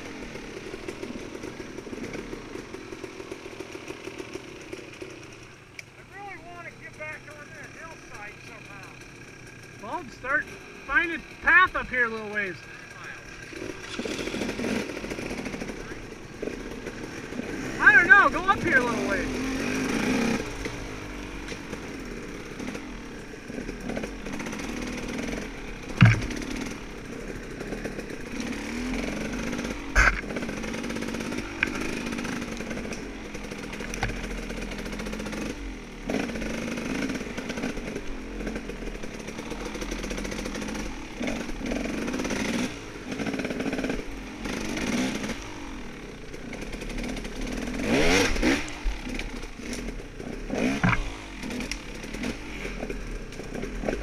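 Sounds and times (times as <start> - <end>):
dirt bike engine revving: 0.0 - 54.0
sharp knocks: 26.0 - 26.7, 50.8 - 51.1.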